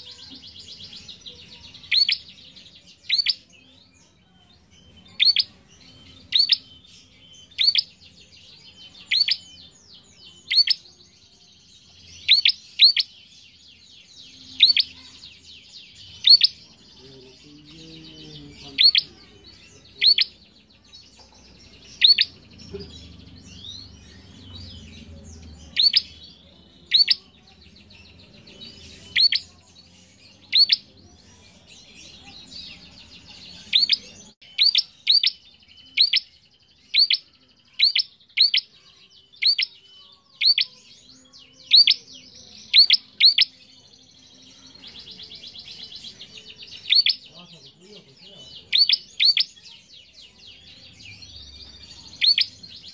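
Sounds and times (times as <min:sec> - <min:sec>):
soft buzzing chatter: 0:00.0 - 0:52.9
bird chirping sharply: 0:01.1 - 0:03.5, 0:04.8 - 0:08.1, 0:08.9 - 0:09.7, 0:10.3 - 0:10.9, 0:12.1 - 0:13.2, 0:14.4 - 0:15.2, 0:15.9 - 0:16.6, 0:18.4 - 0:27.2, 0:28.6 - 0:30.9, 0:33.6 - 0:41.1, 0:41.7 - 0:43.6, 0:44.9 - 0:47.3, 0:48.6 - 0:49.6.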